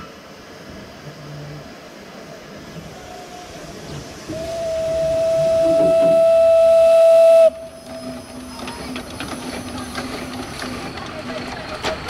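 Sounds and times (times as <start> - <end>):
steam whistle blast: 4.3 - 7.8.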